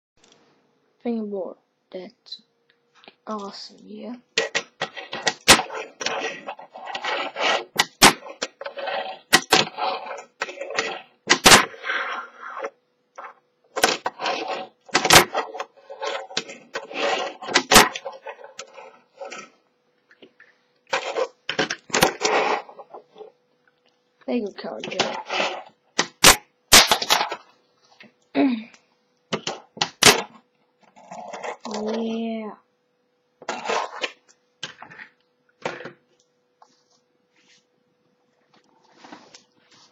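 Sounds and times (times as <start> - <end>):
fingerboard rolling on table: 4.4 - 19.5, 20.9 - 23.3, 24.8 - 27.4, 31.0 - 31.6, 33.4 - 34.2.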